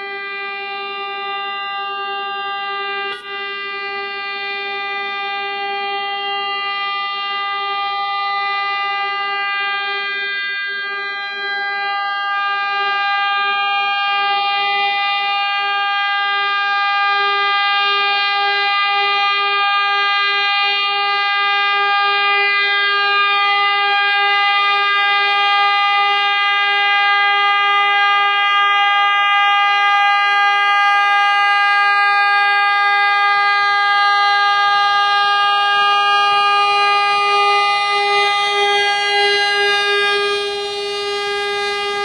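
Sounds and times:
locomotive air horn blast: 0.0 - 28.8, 35.1 - 42.0.

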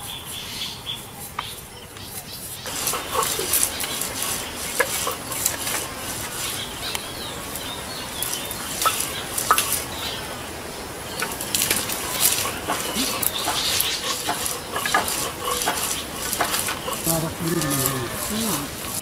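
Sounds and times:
wooden roller scraping on board: 2.7 - 9.9, 11.1 - 19.0.

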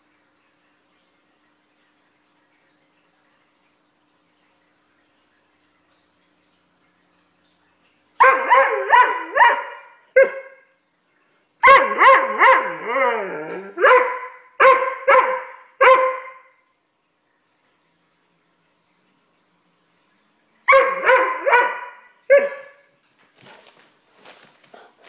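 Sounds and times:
dog barking: 8.2 - 10.6, 11.6 - 12.9, 13.8 - 16.5, 20.7 - 22.8
dog yowling: 8.2 - 10.6, 11.6 - 16.3.

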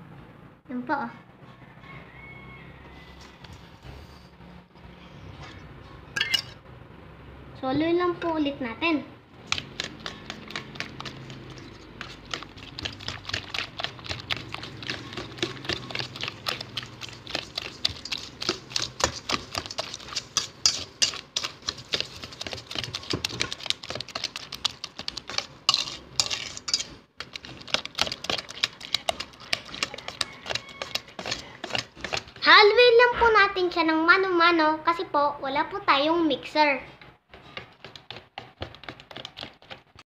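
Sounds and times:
whisk clicking in metal bowl: 9.4 - 32.7, 37.5 - 40.0.

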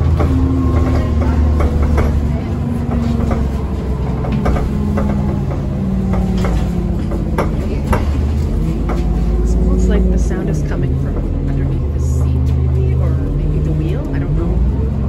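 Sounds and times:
sharp knocking: 0.0 - 10.0
bus engine running: 0.0 - 15.0.

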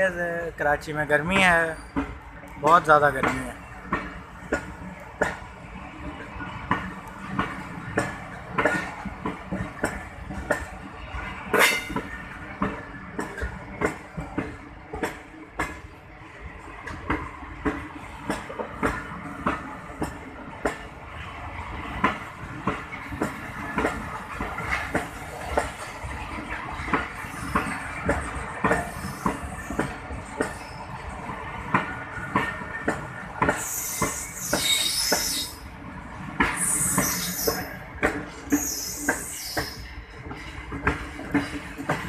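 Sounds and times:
train wheels clattering over rail joints: 1.2 - 10.8, 11.4 - 15.9, 21.7 - 35.6, 36.2 - 42.0
high-pitched hissing squeal: 33.6 - 35.6.

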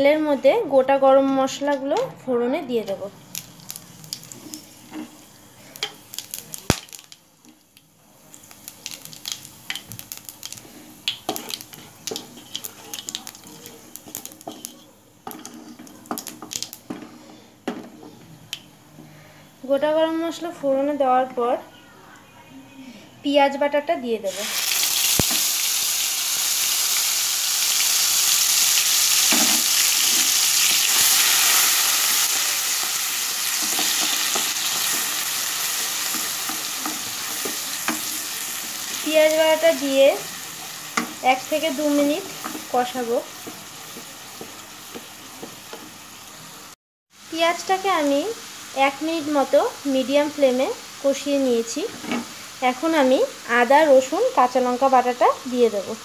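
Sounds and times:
spices crackling and sizzling in oil: 2.8 - 18.6, 24.2 - 56.0
wooden spatula scraping pan: 10.7 - 13.2, 14.0 - 15.9
wooden spatula knocking in pan: 43.4 - 46.0.

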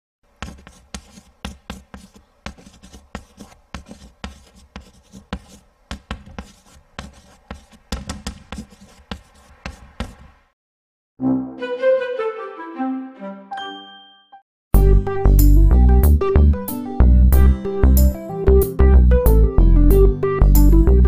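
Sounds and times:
chalk writing on blackboard: 0.3 - 10.4.

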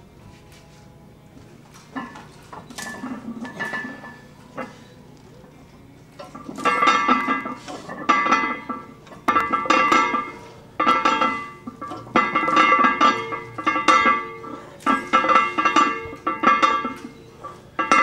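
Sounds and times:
barbell plates clanking: 1.8 - 4.9, 6.2 - 18.0.

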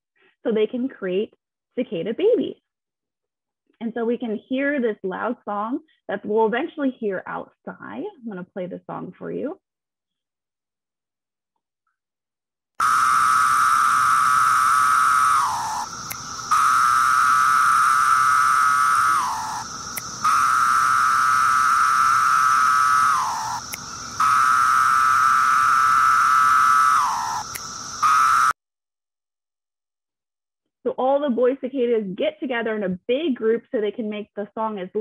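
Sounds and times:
cicadas buzzing: 12.8 - 28.6.

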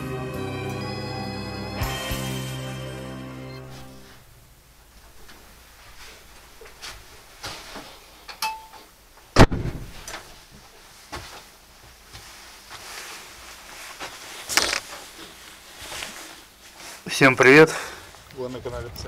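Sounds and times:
door shutting with a bang: 9.4 - 10.2.

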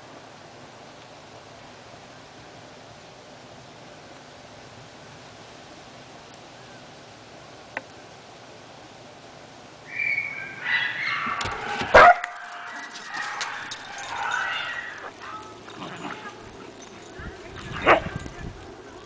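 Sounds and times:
puppies yipping and whining: 9.9 - 18.3.

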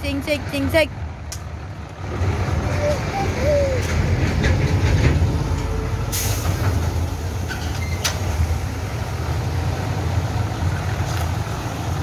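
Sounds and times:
concrete mixer drum rumbling: 2.0 - 7.9.

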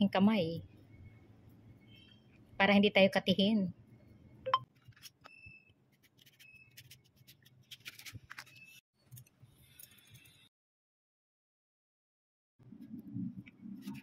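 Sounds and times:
knife scraping vegetable skin: 5.9 - 8.8.

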